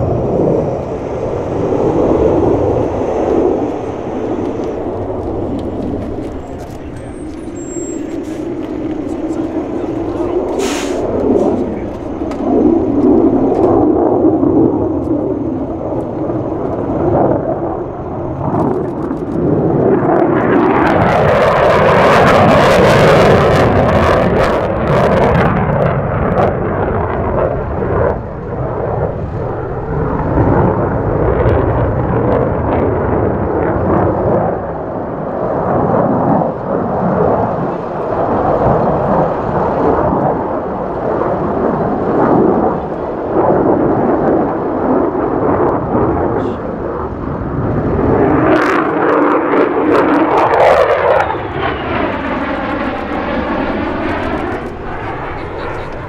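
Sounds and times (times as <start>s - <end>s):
jet engine rumble: 0.0s - 56.0s
jet passing with falling tones: 0.0s - 56.0s.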